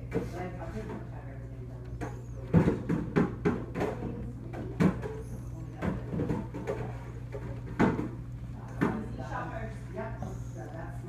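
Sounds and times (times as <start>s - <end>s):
steady low hum: 0.0s - 11.0s
sharp taps and knocks: 2.0s - 9.0s.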